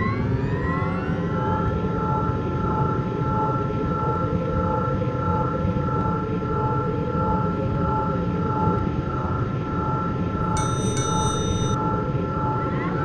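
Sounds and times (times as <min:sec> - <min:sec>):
high whining tones: 0:10.6 - 0:11.8.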